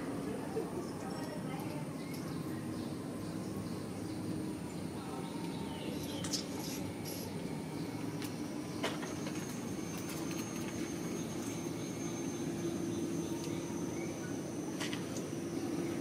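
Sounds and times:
low mechanical drone: 0.0 - 16.0.

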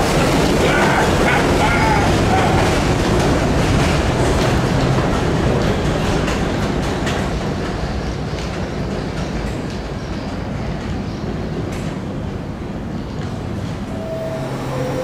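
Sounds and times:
train wheels clicking on rail joints: 0.0 - 14.0
subway train rumbling: 0.0 - 15.0.

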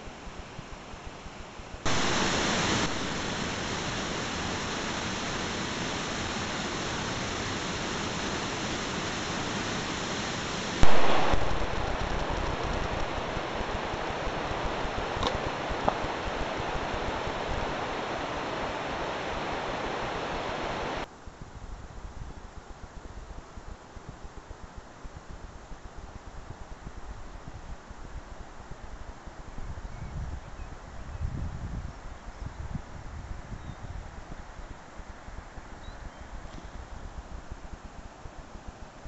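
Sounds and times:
waterfall rushing: 1.9 - 21.1.

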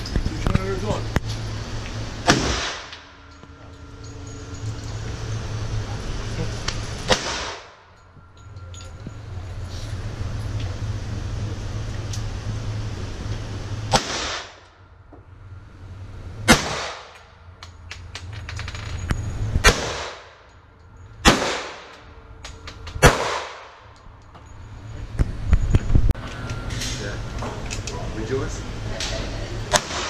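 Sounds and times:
handgun shots: 7.1 - 7.7, 23.0 - 23.7, 29.7 - 30.0.

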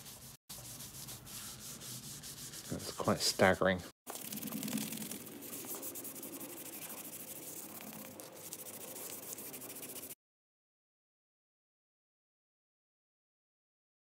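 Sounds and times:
cloth wiping over wooden bowl: 0.0 - 3.6, 4.2 - 10.2.

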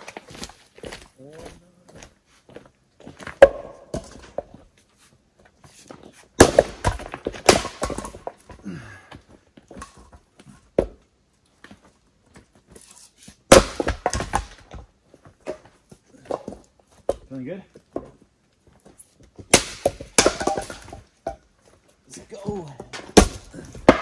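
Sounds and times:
axe chopping wood: 3.4 - 4.4, 6.4 - 8.6, 13.5 - 14.8, 19.4 - 21.4, 22.4 - 24.0
wood cracking as it splits: 6.4 - 8.8, 19.4 - 21.0, 22.4 - 24.0
wood pieces clattering down: 19.5 - 21.4.

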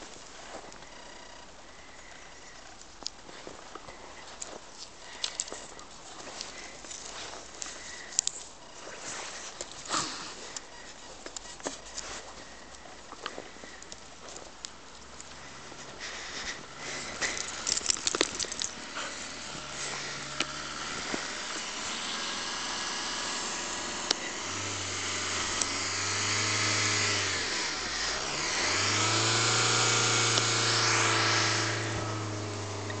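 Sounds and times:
tyre noise on snowy road: 0.0 - 33.0
van engine hum: 0.0 - 33.0
sharp clicks: 17.0 - 18.8.

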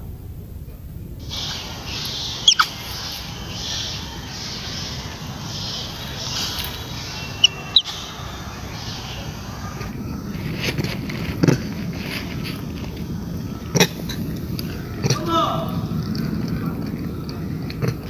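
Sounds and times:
wind rumble on microphone: 0.0 - 18.0
short sharp high calls: 1.2 - 10.0.

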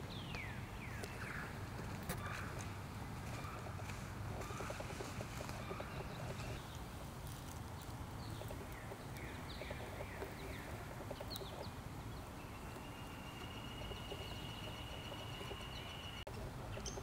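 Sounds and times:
songbird down-slurred notes: 8.3 - 17.0.

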